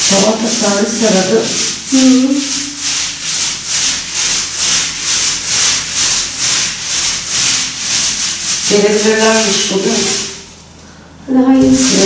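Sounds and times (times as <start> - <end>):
paint roller rubbing on wall: 0.0 - 10.8, 11.5 - 12.0.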